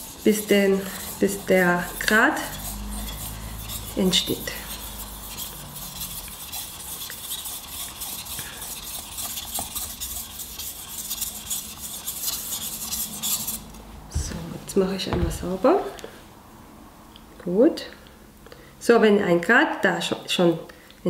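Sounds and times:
knife scraping on water stone: 0.0s - 13.7s.

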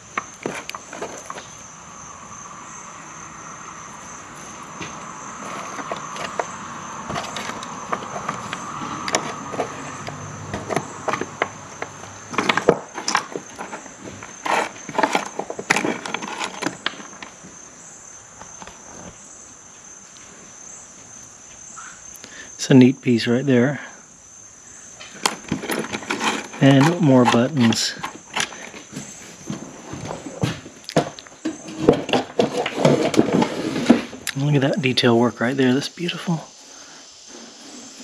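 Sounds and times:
insect chorus: 0.0s - 38.0s
buttons and spools rattling: 25.2s - 28.9s.

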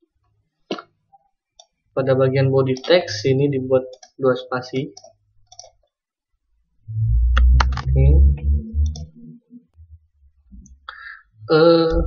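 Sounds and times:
computer mouse clicks: 4.8s - 6.0s
low muffled rumble: 6.8s - 10.9s
person speaking: 6.9s - 10.0s.

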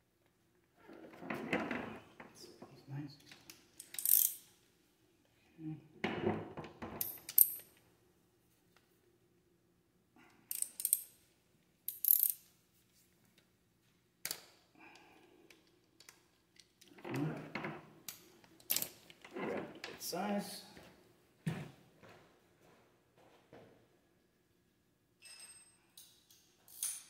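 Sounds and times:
tools and metal parts clinking: 3.2s - 4.5s, 6.8s - 7.8s, 10.5s - 11.2s, 11.9s - 12.5s, 15.5s - 19.9s, 25.2s - 27.0s.

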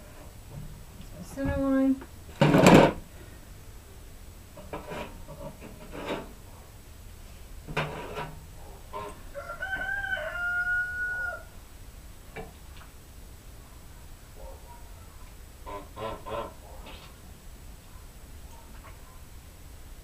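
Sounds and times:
rooster crowing: 9.2s - 11.6s.

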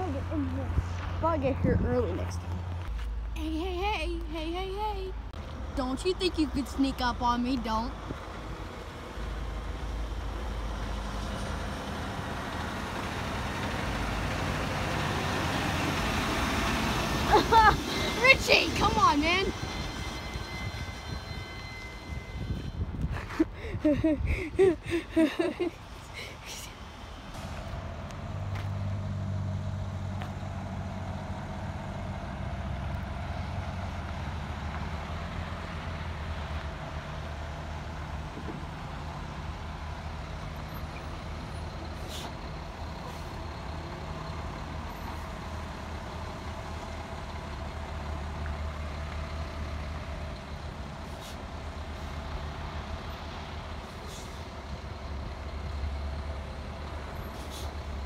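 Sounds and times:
diesel truck engine rumbling: 0.0s - 58.0s
air brake hisses: 53.9s - 54.5s, 57.3s - 57.8s.

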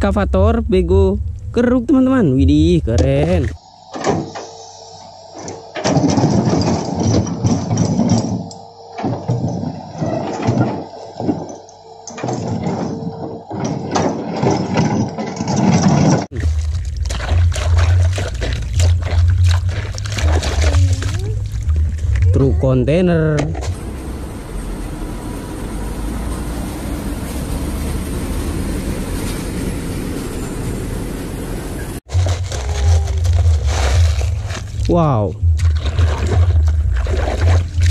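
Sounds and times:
excavator diesel engine working: 0.0s - 35.6s
tyre noise on road: 31.7s - 37.9s
bucket knocking against stones: 32.1s - 34.9s.

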